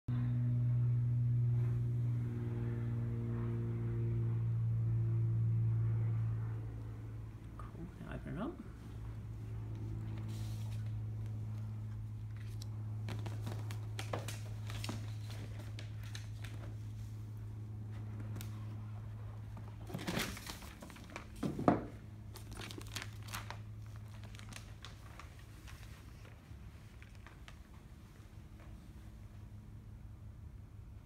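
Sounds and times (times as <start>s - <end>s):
steady low hum: 0.1s - 31.0s
paper and cardboard rustling: 9.9s - 17.2s, 17.9s - 27.9s.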